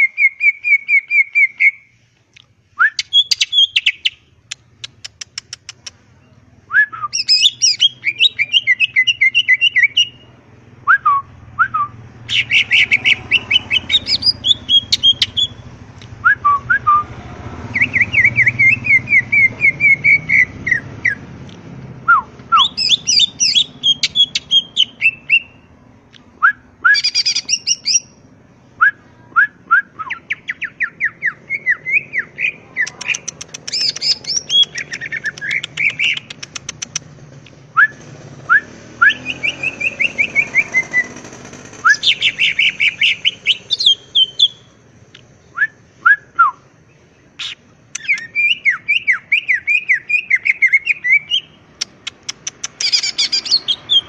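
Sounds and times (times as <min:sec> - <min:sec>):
bird song with ticks and trills: 0:00.0 - 0:06.0, 0:06.9 - 0:10.2, 0:12.3 - 0:16.2, 0:22.4 - 0:28.2, 0:30.0 - 0:37.1, 0:39.1 - 0:54.0.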